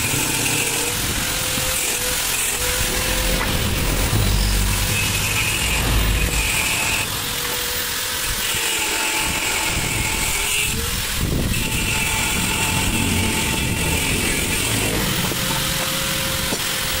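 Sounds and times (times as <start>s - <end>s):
high whine: 0.6s - 8.9s
motorcycle engine rumbling: 0.8s - 8.0s, 11.6s - 15.9s.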